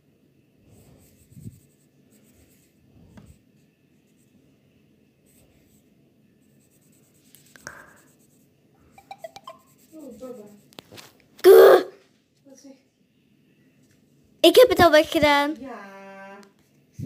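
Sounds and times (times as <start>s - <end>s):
marker scratching on paper: 0.7s - 4.4s, 5.2s - 11.2s.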